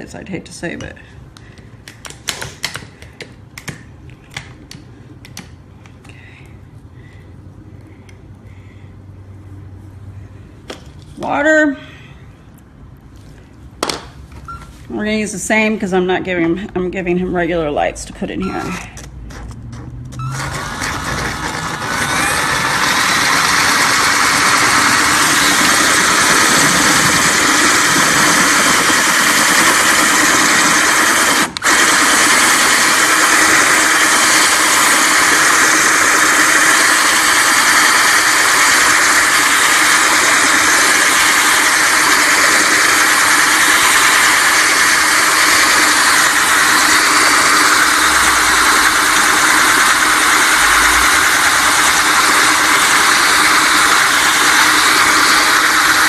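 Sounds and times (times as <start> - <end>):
power drill grinding through glass: 20.1 - 56.0.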